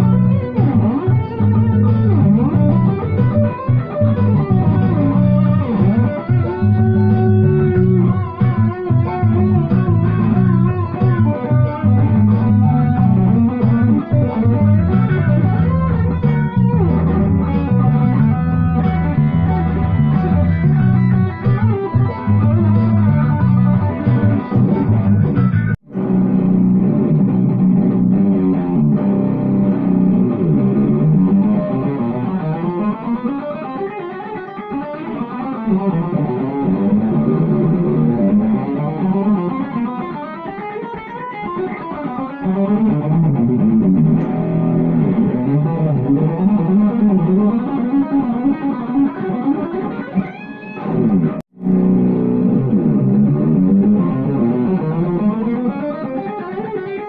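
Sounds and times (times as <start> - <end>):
jazzy backing track: 0.0 - 32.3
electric guitar solo: 0.0 - 57.0.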